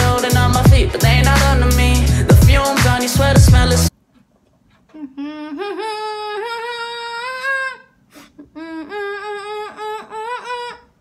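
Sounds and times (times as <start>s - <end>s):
woman singing unaccompanied: 0.0s - 3.9s.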